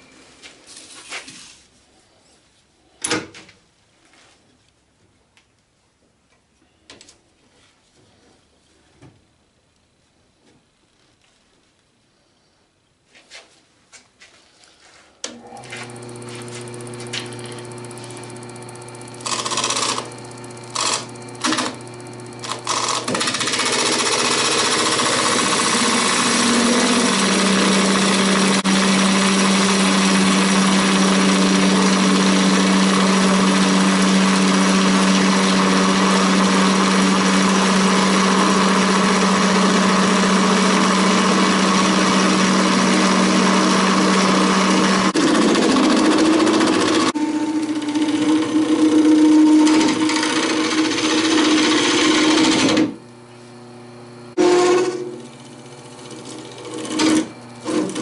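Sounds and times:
lathe motor hum: 0:15.3 - 0:58.0
turning tool cutting resin: 0:15.4 - 0:53.1, 0:54.3 - 0:58.0.

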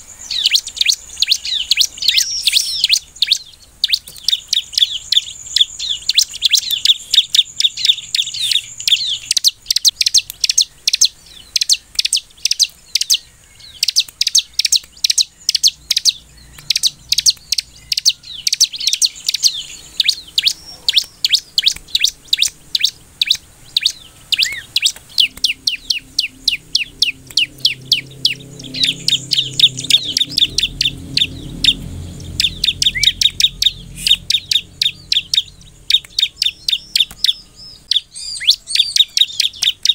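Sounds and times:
bird singing high chirps: 0:00.0 - 0:39.9
faint low rumble: 0:15.4 - 0:38.0.

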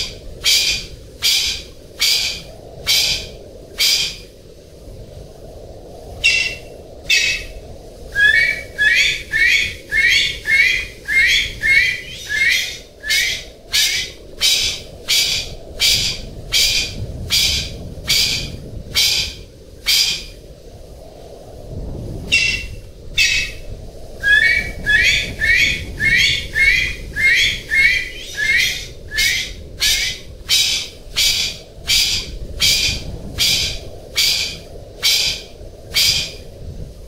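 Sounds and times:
steady low hiss: 0:00.0 - 0:37.0
pheasant harsh rasping calls: 0:06.2 - 0:07.5, 0:08.2 - 0:20.3, 0:22.3 - 0:23.6, 0:24.2 - 0:36.4.

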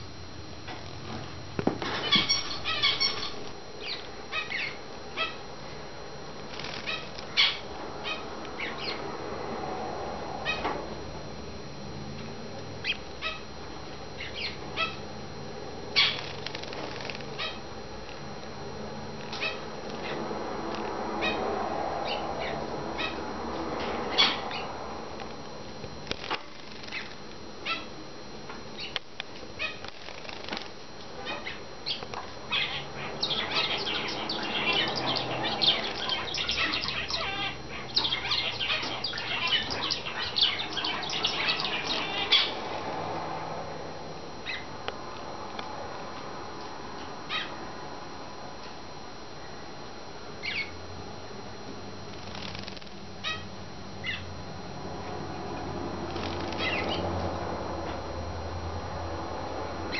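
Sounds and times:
finches chirping: 0:02.0 - 0:05.4, 0:06.5 - 0:09.1, 0:12.8 - 0:13.4, 0:14.2 - 0:15.0, 0:15.9 - 0:17.6, 0:22.0 - 0:23.3, 0:24.0 - 0:24.8, 0:26.1 - 0:27.9, 0:28.8 - 0:29.0, 0:31.2 - 0:42.8, 0:44.4 - 0:44.7, 0:50.4 - 0:50.8, 0:52.2 - 0:54.3, 0:56.2 - 0:57.2.

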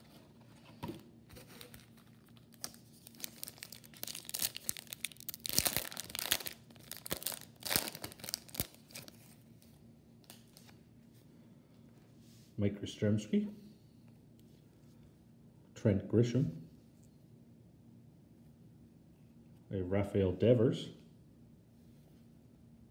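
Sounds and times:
card pack wrapper tearing: 0:01.4 - 0:09.2.

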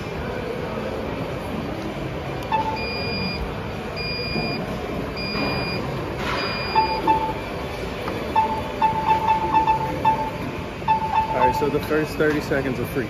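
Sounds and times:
short electronic beeps: 0:02.5 - 0:04.6, 0:05.2 - 0:07.5, 0:08.3 - 0:11.8.

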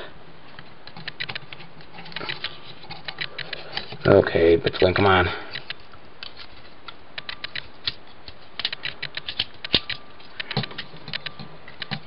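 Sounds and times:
plastic toy joints clicking: 0:08.6 - 0:12.0.

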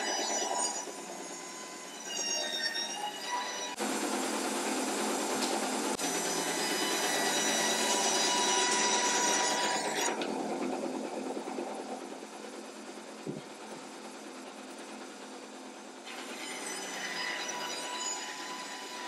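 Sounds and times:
band saw cutting wood: 0:00.0 - 0:10.3, 0:16.0 - 0:19.0.

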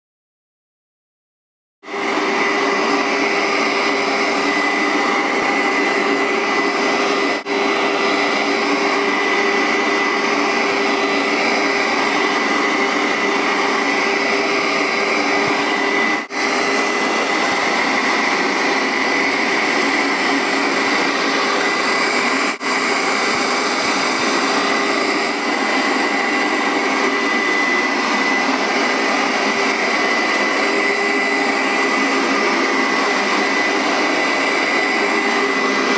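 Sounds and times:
carpet cleaner motor whine: 0:01.8 - 0:35.9.

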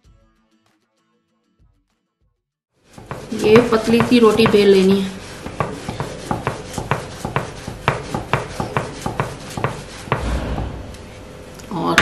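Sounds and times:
rolling pin on dough: 0:02.8 - 0:10.8
rolling pin knocking on board: 0:03.0 - 0:10.7.

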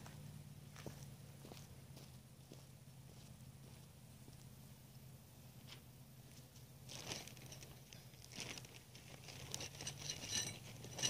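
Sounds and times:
faint low hum: 0:00.0 - 0:11.0
metal fittings rustling and clicking: 0:06.9 - 0:11.0
soft metallic clinks: 0:07.0 - 0:08.2, 0:09.4 - 0:11.0.

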